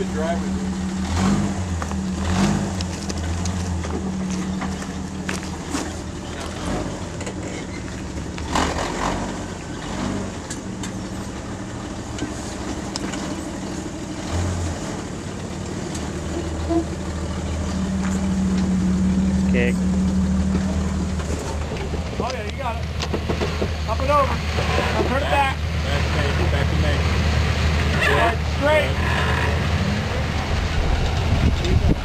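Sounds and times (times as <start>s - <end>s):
off-road vehicle engine running: 0.0s - 32.0s
noisy scrape: 23.1s - 32.0s.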